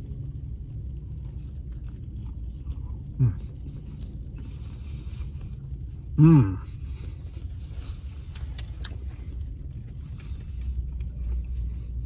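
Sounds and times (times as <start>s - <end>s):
low rumble in car: 0.0s - 12.0s
man chewing food: 0.0s - 12.0s
man saying mmm: 6.2s - 6.7s.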